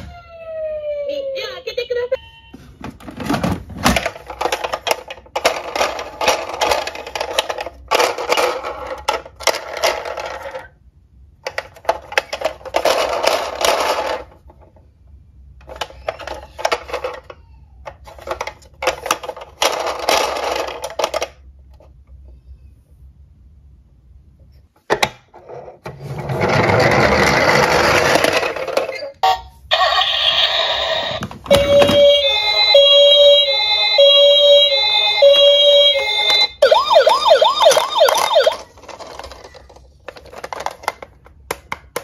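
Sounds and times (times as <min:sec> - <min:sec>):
plastic toy cars clattering: 0:02.8 - 0:10.8, 0:11.4 - 0:14.9, 0:15.5 - 0:22.0, 0:24.8 - 0:29.2, 0:37.4 - 0:42.0.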